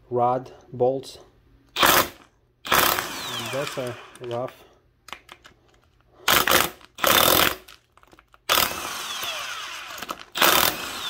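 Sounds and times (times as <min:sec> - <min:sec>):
power tool bursts: 0:01.8 - 0:04.4, 0:08.5 - 0:11.0.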